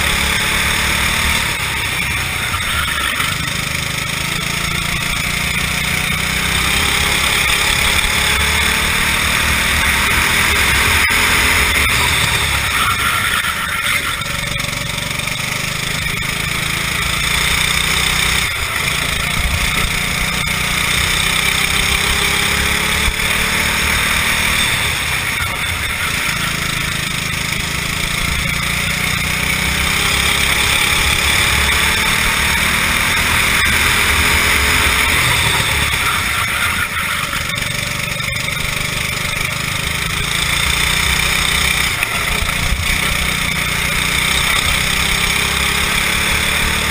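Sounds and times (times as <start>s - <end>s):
kart engine revving: 0.0s - 46.9s.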